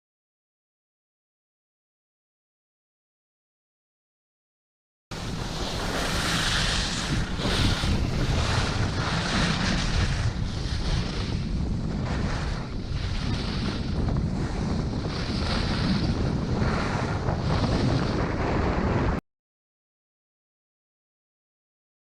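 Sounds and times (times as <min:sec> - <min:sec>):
wind buffeting microphone: 0:05.1 - 0:19.2.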